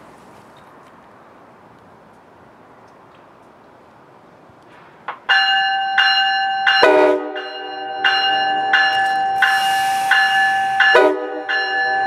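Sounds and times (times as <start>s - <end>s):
train bell ringing: 5.3s - 12.0s
train horn chord: 6.7s - 12.0s.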